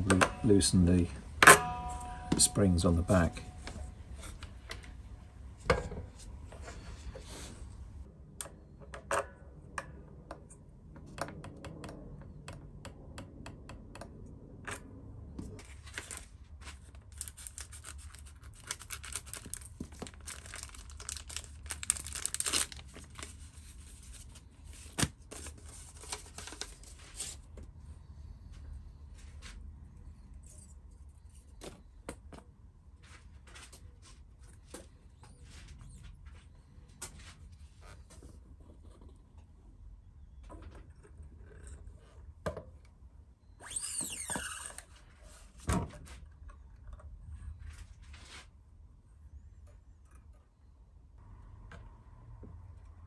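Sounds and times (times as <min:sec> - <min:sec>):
paper and plastic crinkling and tearing: 0:15.6 - 0:27.5.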